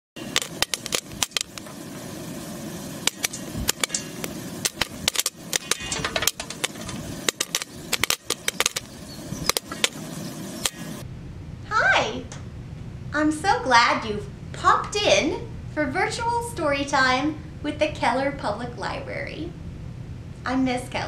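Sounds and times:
popcorn popping in metal pan: 0.2 - 11.0
steady low hiss: 0.2 - 21.0.

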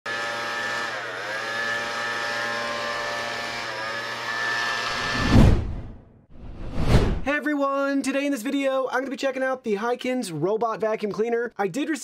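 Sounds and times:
robot vacuum motor whine: 0.1 - 5.2
deep whoosh: 5.0 - 7.3.

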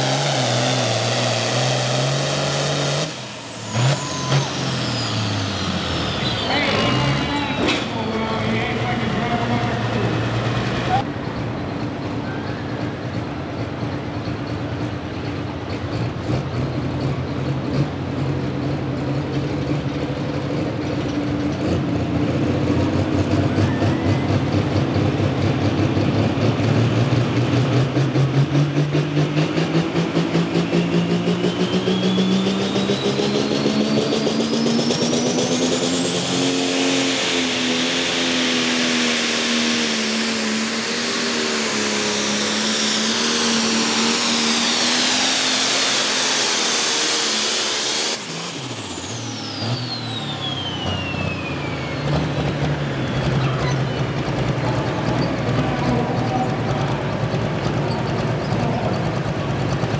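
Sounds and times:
turbo whine: 31.2 - 54.2
tractor engine running under load: 48.2 - 59.9.

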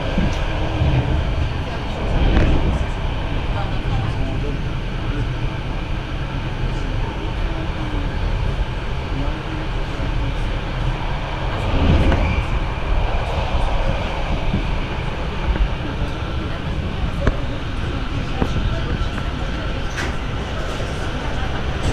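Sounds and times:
train wheels rumbling on rails: 0.0 - 21.9.

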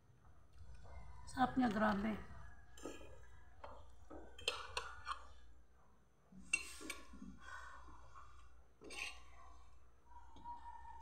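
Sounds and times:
fork scraping ceramic plate: 8.8 - 9.6.

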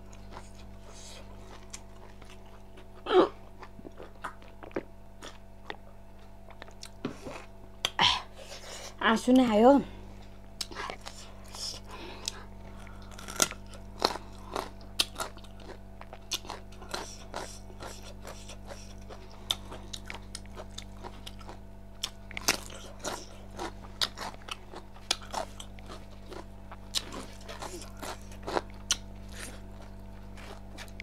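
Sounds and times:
chewing and crunching food: 0.0 - 8.0, 10.2 - 31.0
steady low hum: 0.0 - 31.0.

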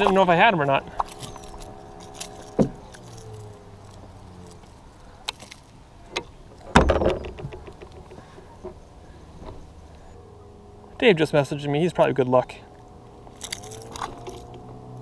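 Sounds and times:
handling clicks and knocks: 0.9 - 9.7, 13.3 - 14.8
thump and rustle: 2.5 - 3.2, 6.2 - 8.8.

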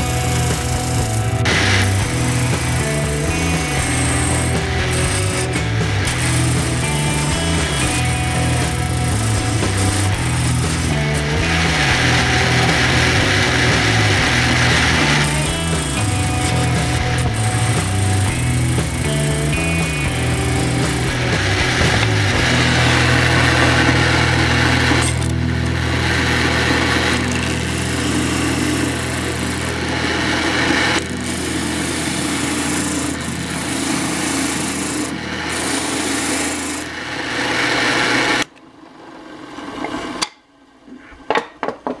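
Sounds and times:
wood rasping against sandpaper: 0.0 - 25.2
drill press motor humming: 0.0 - 38.5.

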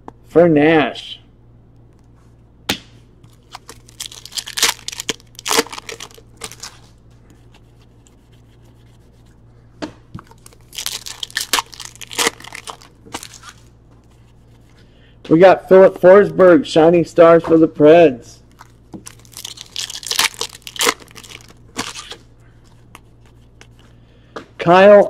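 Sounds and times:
foil wrapper tearing and crinkling: 3.2 - 7.5, 10.2 - 13.7, 18.5 - 23.8.

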